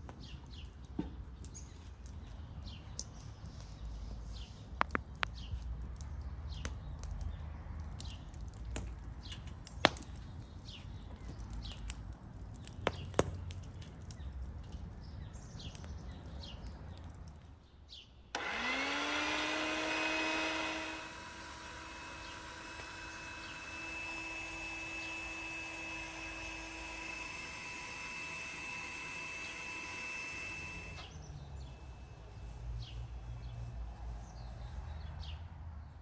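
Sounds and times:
birds chirping: 0.1 - 8.4, 9.2 - 11.9, 12.5 - 19.0, 20.1 - 36.0
electric motor whine: 18.4 - 31.2.

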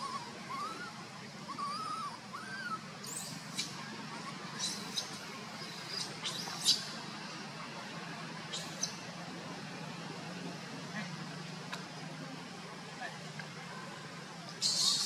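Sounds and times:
baby monkey whimpers: 0.0 - 0.9, 1.5 - 5.2.

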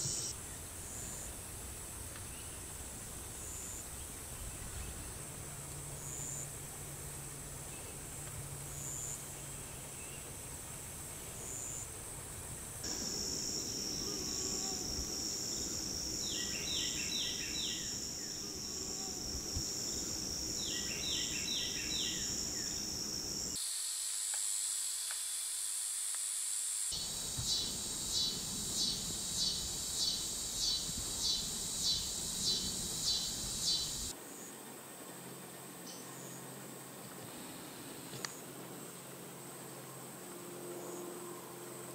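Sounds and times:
insects buzzing: 0.0 - 1.4, 10.8 - 34.2.

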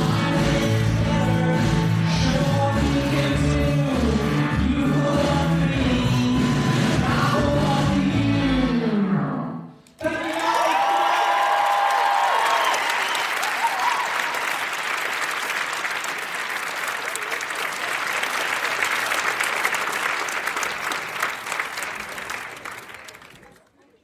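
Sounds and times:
audience applauding: 10.0 - 23.8.

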